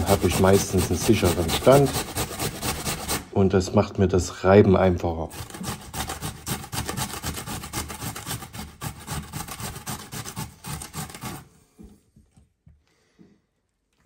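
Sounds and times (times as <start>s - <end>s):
potato rasping on metal grater: 0.0s - 3.3s, 5.2s - 11.5s.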